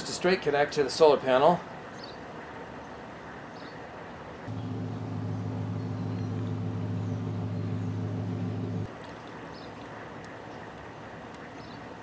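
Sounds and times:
small water pump humming: 0:04.5 - 0:10.3.

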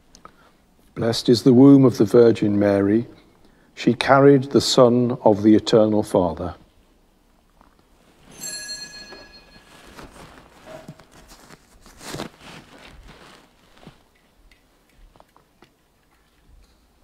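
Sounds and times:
rustling: 0:07.6 - 0:16.8
soft footsteps: 0:07.6 - 0:16.9
metallic ring: 0:08.2 - 0:09.8.

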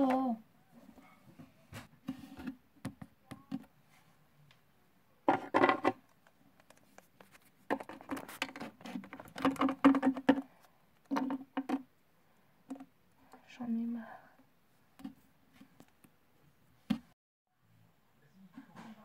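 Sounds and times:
toy figurines scratching and tapping: 0:05.3 - 0:11.9.

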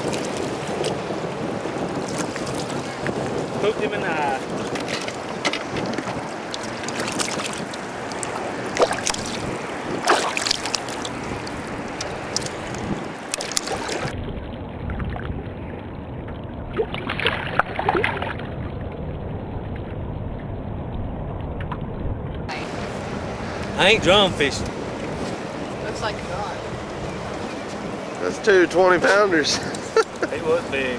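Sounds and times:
water splashing against a boat: 0:00.0 - 0:30.9
low rumble: 0:07.2 - 0:28.0.

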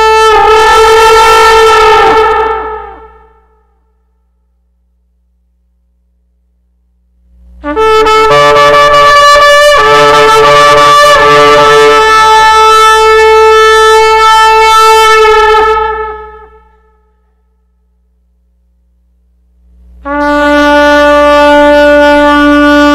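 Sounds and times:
shofar blast: 0:00.0 - 0:04.3, 0:07.6 - 0:17.7, 0:20.0 - 0:22.9.

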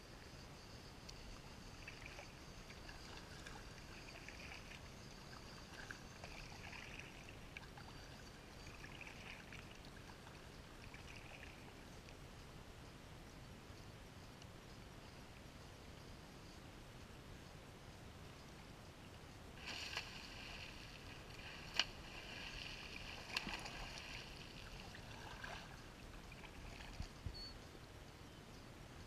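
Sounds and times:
paddle dipping into water: 0:19.6 - 0:27.2.

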